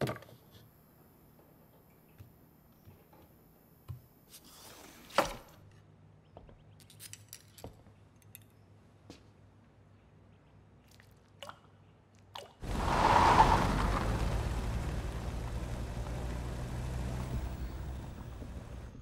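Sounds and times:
car engine: 12.6 - 19.0.

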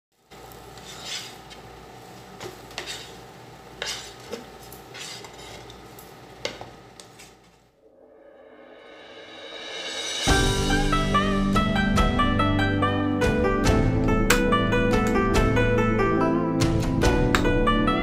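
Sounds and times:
faint sizzle: 0.1 - 7.4
metal spoon scraping frying pan: 0.7 - 1.6, 2.4 - 5.8.

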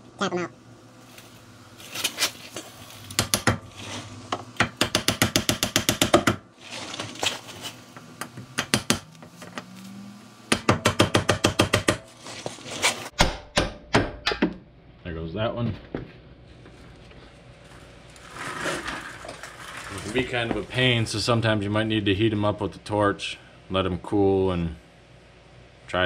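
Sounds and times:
hammer striking metal: 10.5 - 12.1, 13.2 - 14.5.

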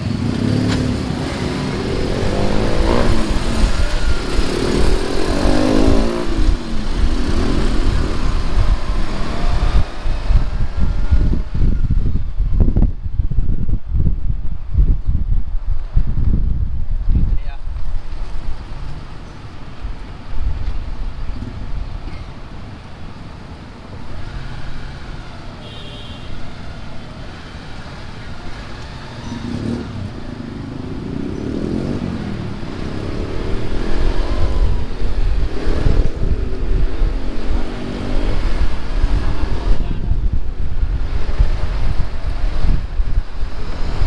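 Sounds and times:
vehicle engine revving: 0.0 - 11.7
road noise: 0.0 - 44.0.

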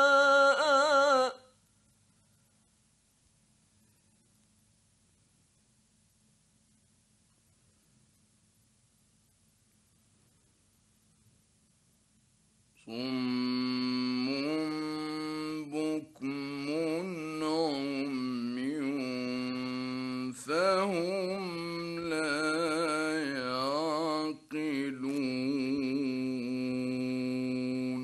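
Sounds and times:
man reciting melodically: 0.0 - 1.5, 12.8 - 28.0.

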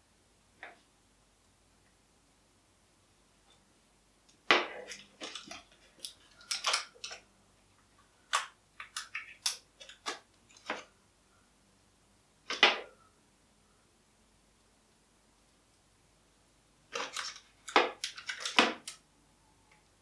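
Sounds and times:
hands handling small objects: 4.8 - 7.3.

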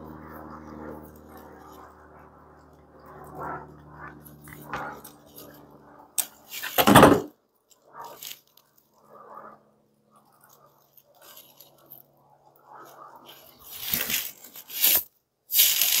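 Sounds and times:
scraping rustle: 7.9 - 8.9, 10.2 - 16.0.

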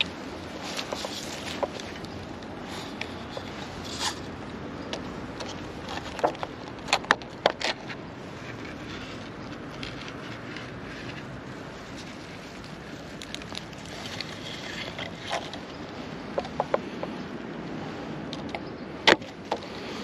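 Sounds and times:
cloth net rustling and scraping: 0.0 - 4.3, 8.2 - 16.1.

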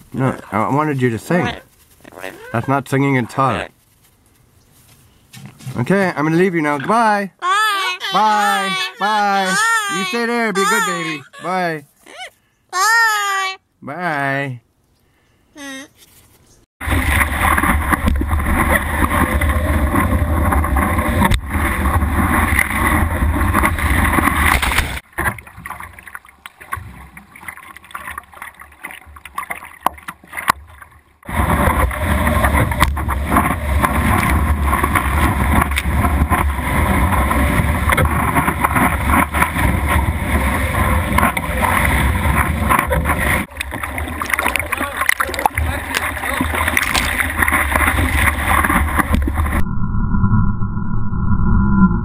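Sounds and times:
water lapping: 7.4 - 12.4, 16.8 - 49.4
water rushing: 7.5 - 11.8, 16.8 - 49.6.

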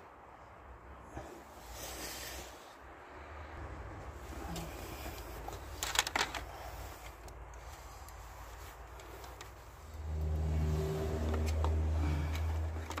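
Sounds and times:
low steady rumble: 0.1 - 13.0
plastic clicks: 5.5 - 8.2
vehicle engine running: 6.5 - 13.0.

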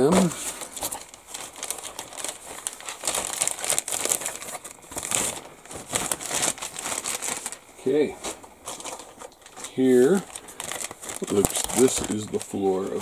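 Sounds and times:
plastic bag crinkling and rustling: 0.0 - 13.0.

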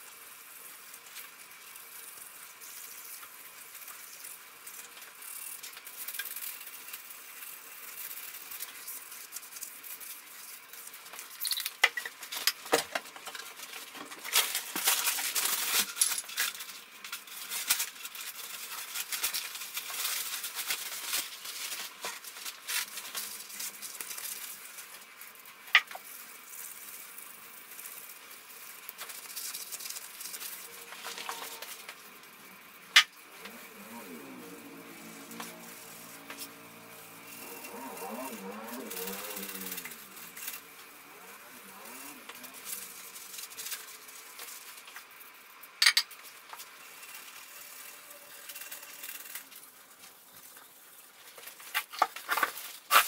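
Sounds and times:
abrasive pad scrubbing metal: 33.3 - 43.4.

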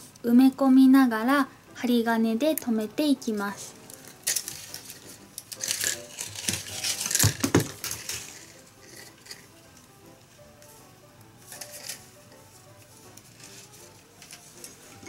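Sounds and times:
bamboo strips crackling and creaking: 3.6 - 15.0.

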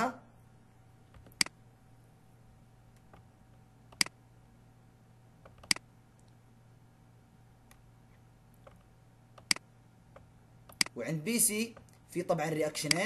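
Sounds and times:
computer mouse clicks: 1.1 - 1.6, 3.9 - 4.2, 5.4 - 6.4, 8.5 - 11.0.

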